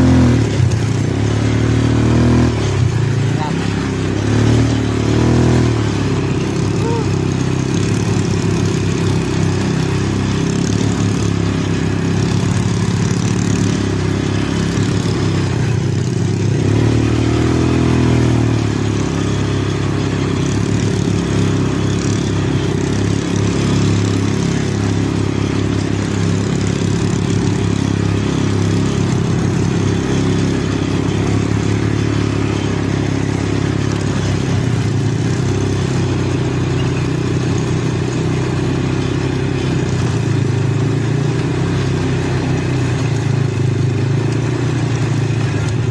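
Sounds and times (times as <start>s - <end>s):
quad bike engine running: 0.0s - 45.9s.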